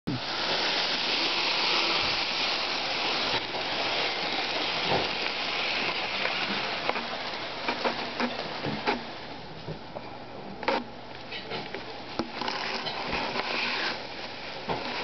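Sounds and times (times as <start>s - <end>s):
model train running on rails: 0.1s - 9.5s, 11.6s - 15.0s.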